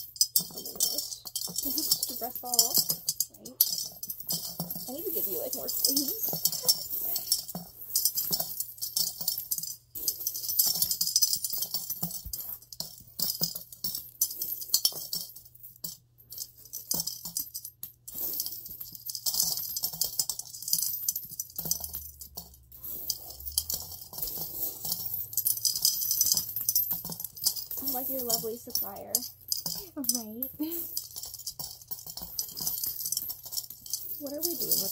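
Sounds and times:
coins clinking: 0.0 - 34.9.

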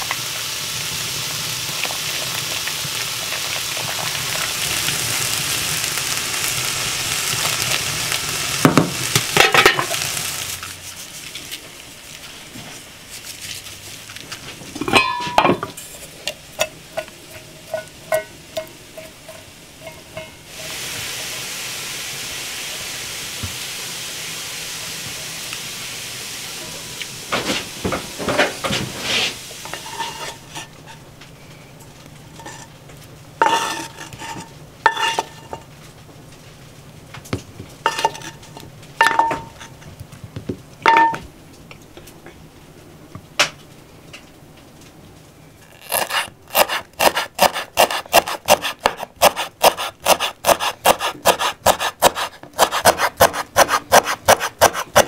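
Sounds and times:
pan sizzling: 0.0 - 40.0, 45.6 - 55.0
metal utensil scraping a pan: 14.8 - 20.8, 28.3 - 31.1, 32.3 - 32.8, 33.4 - 35.7, 37.9 - 39.9.

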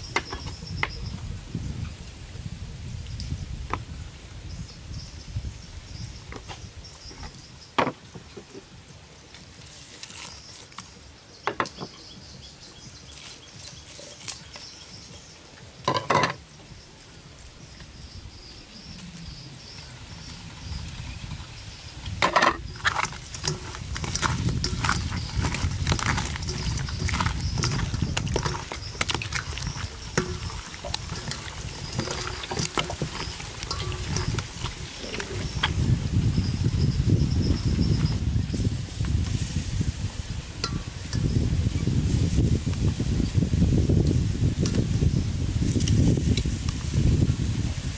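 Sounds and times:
knocks and clinks in metal bowl: 15.9 - 16.4, 22.2 - 35.8, 40.6 - 41.4
wet squelching of kneading: 22.7 - 35.9.

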